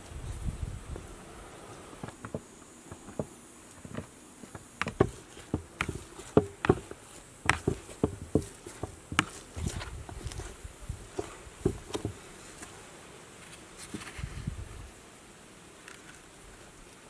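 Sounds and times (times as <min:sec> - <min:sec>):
potato masher mashing potatoes: 0:04.8 - 0:10.5.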